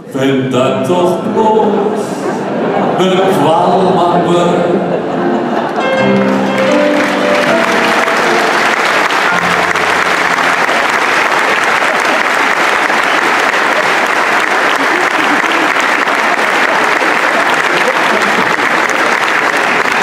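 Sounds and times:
audience applauding: 5.3s - 20.0s.

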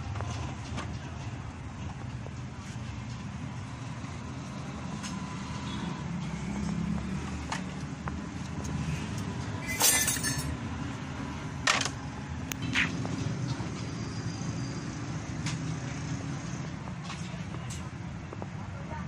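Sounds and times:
street traffic rumble: 0.0s - 19.0s
steel dishes clinking and clattering: 9.6s - 10.5s.

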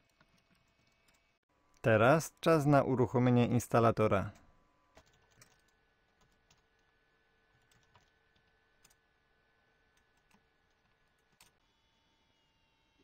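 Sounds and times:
computer keyboard keystrokes: 5.0s - 6.8s, 7.6s - 9.0s.

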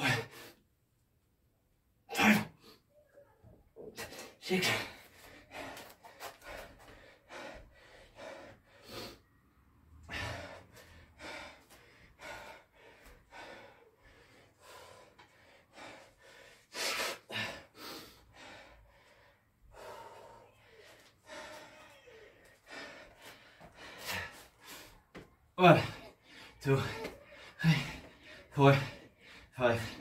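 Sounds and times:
man breathing hard: 4.0s - 30.0s
man gasping: 10.0s - 30.0s.

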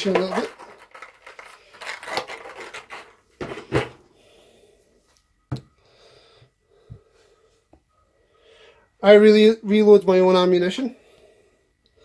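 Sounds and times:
objects rubbing and scraping: 0.0s - 4.1s.

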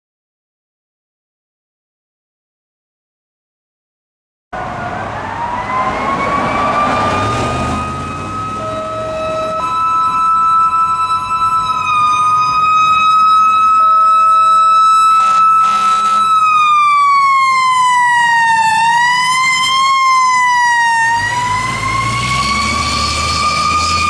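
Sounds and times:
diesel engine rumble: 4.6s - 24.0s
fire engine siren: 4.6s - 24.0s
short horn blasts: 15.2s - 16.4s.

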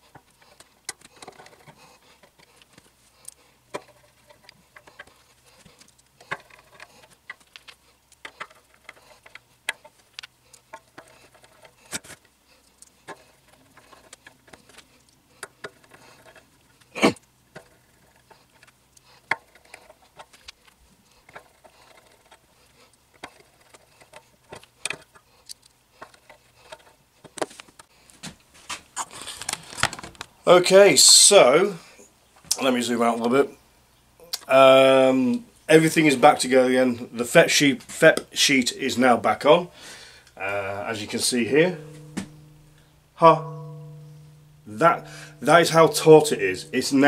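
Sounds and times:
sharp knock: 41.8s - 42.6s.

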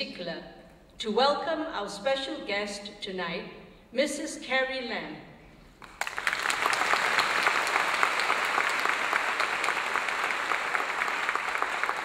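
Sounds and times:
audience applauding: 5.8s - 12.0s.

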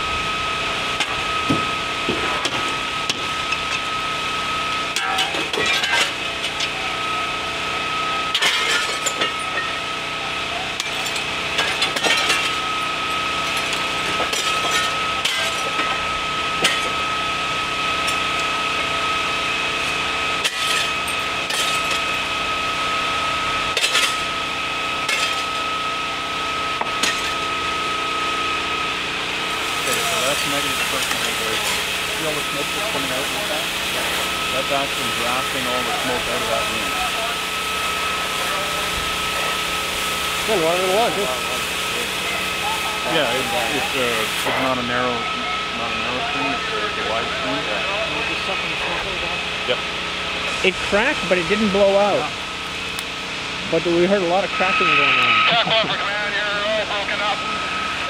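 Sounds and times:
engine drone with high whine: 0.0s - 58.0s
fire cracking and snapping: 10.7s - 17.2s.

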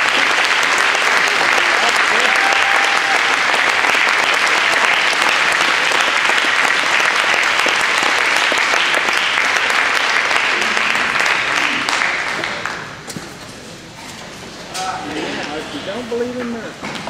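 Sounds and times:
crowd applauding: 0.0s - 12.9s.

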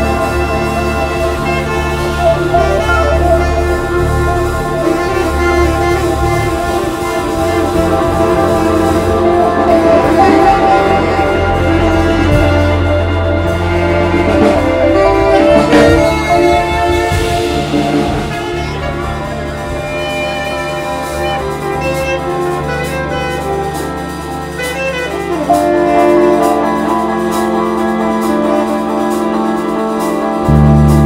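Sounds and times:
live band playing: 0.0s - 31.0s.

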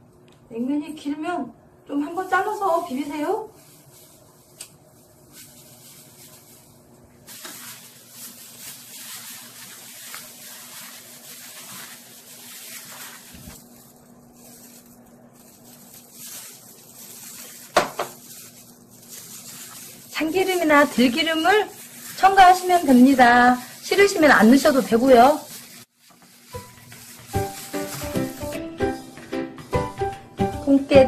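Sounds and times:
plastic glove rustling: 1.9s - 31.0s
wet squishing of noodles: 7.3s - 27.8s.

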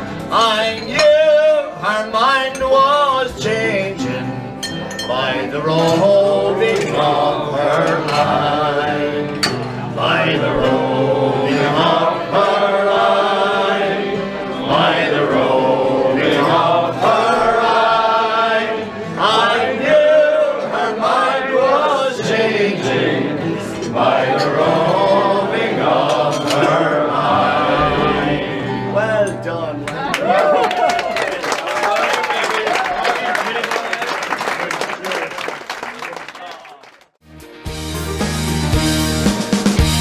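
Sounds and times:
crowd singing: 0.0s - 29.3s
acoustic guitar: 0.0s - 30.2s.

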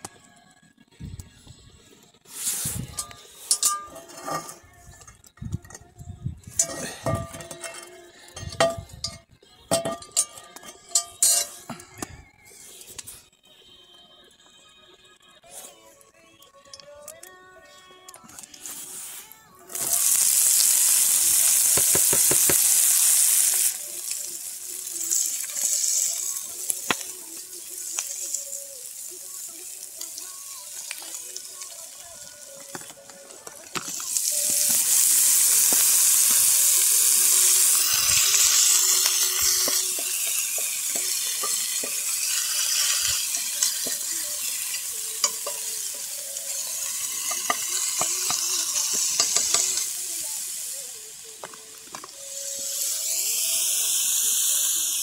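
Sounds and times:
food sizzling in a pot: 2.3s - 4.7s, 9.8s - 11.7s, 18.6s - 55.0s
wood fire crackling: 19.7s - 53.0s.

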